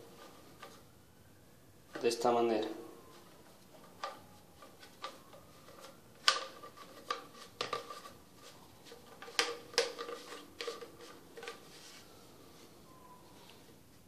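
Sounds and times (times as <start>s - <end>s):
plastic pipe pieces clacking: 3.9s - 8.2s, 9.0s - 11.6s.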